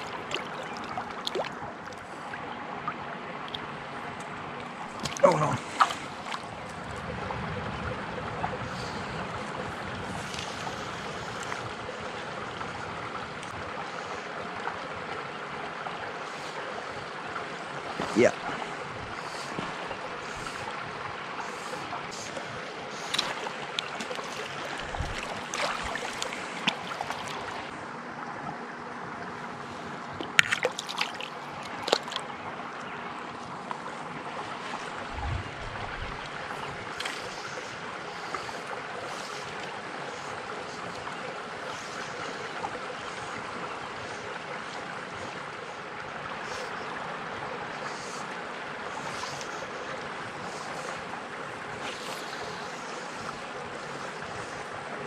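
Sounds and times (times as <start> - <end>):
outdoor air and water hiss: 0.0 - 55.0
low thumps: 35.1 - 36.2.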